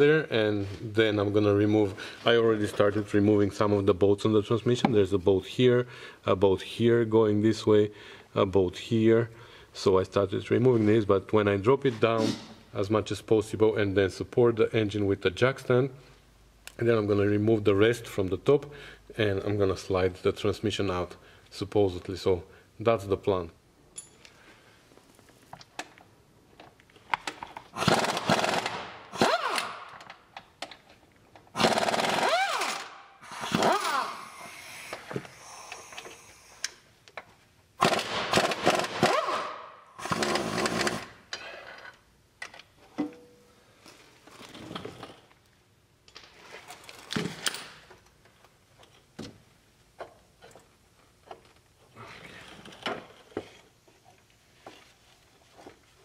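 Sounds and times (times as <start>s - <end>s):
metal clinks and knocks: 23.9s - 24.3s
pneumatic wrench whine: 27.8s - 30.0s, 31.6s - 36.6s, 37.8s - 41.2s.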